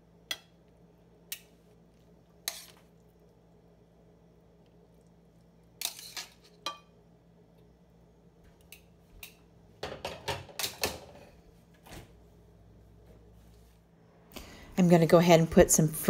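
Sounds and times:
fork clinking and scraping on plate: 0:02.4 - 0:02.9, 0:05.8 - 0:06.9.

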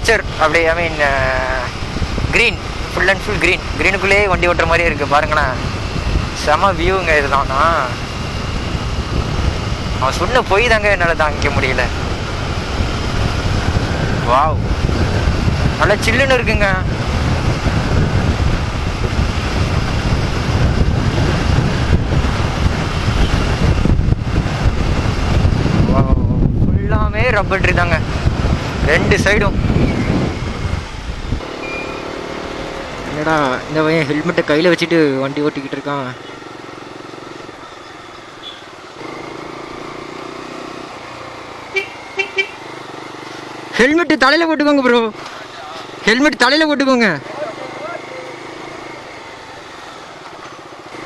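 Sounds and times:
wind buffeting microphone: 0:00.0 - 0:31.5
motorcycle engine running: 0:00.0 - 0:46.4
road noise: 0:00.0 - 0:51.0
vehicle horn beeps: 0:31.6 - 0:32.2, 0:38.4 - 0:38.7, 0:41.7 - 0:42.6.

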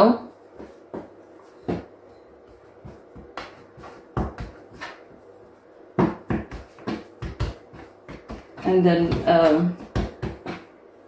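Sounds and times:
hands patting dough: 0:00.3 - 0:11.0.

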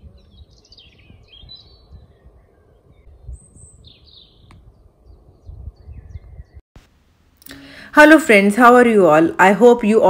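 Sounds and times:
songbirds chirping: 0:00.0 - 0:06.6
wind rumble on microphone: 0:00.0 - 0:06.6.

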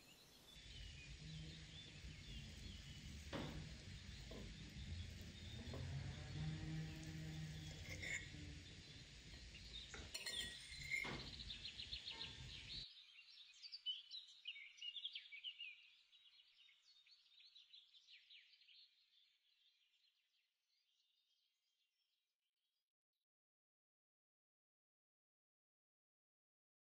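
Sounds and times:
background noise: 0:00.0 - 0:19.7
birds chirping: 0:00.1 - 0:12.8.

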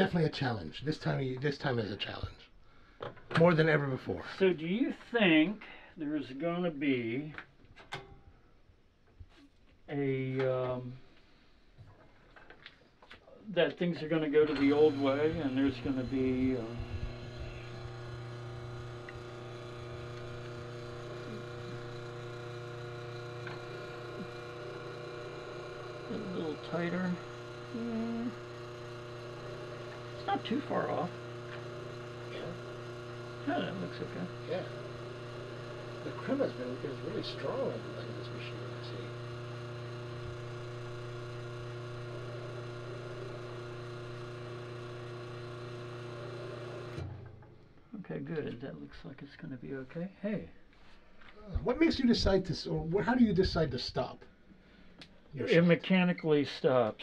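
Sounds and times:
espresso machine humming: 0:14.1 - 0:47.2
espresso pouring into cup: 0:14.5 - 0:47.1.

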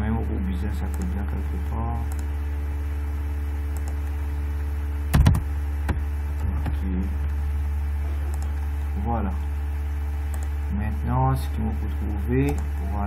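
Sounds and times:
steady low hum: 0:00.0 - 0:13.0
keyboard and mouse clicks: 0:03.7 - 0:04.1, 0:05.1 - 0:06.8, 0:08.3 - 0:08.5, 0:12.4 - 0:12.7.

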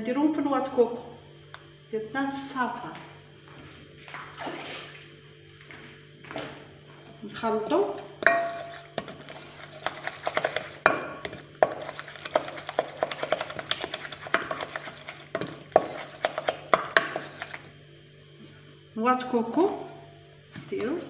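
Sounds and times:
wooden spoon beating mixture: 0:07.6 - 0:17.8, 0:19.7 - 0:21.0.

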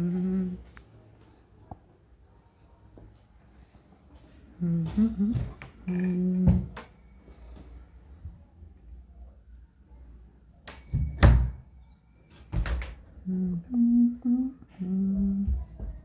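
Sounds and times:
person humming notes: 0:00.0 - 0:00.7, 0:04.6 - 0:06.7, 0:13.2 - 0:15.7.

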